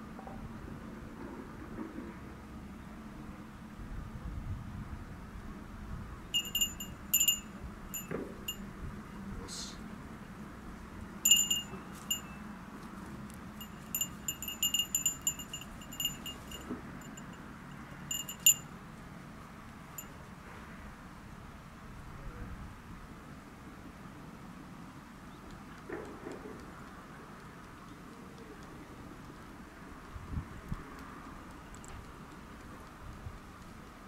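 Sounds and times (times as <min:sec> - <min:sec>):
small metal bell jingling: 0:06.4 - 0:08.6, 0:11.2 - 0:12.4, 0:13.6 - 0:18.7.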